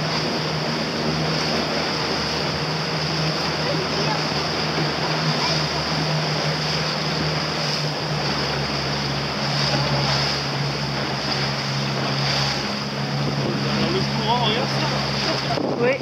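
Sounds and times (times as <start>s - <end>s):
low engine hum: 0.0s - 16.0s
water rushing past boat: 0.0s - 16.0s
wind buffeting microphone: 11.3s - 16.0s.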